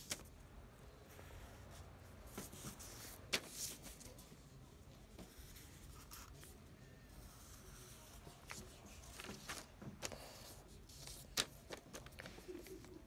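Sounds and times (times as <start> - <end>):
marker scratching on paper: 5.2 - 6.5.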